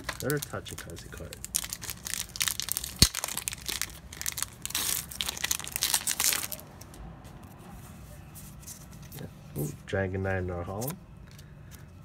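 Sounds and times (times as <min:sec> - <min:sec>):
foil wrapper crinkling: 0:00.0 - 0:07.0.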